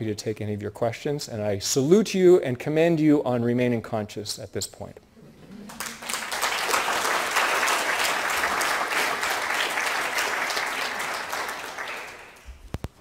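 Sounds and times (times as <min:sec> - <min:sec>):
audience applauding: 0:05.6 - 0:12.6.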